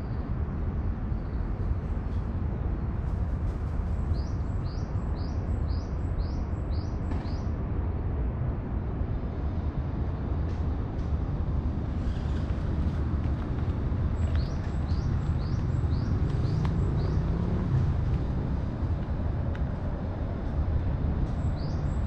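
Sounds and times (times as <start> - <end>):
steady low rumble: 8.6 - 21.6.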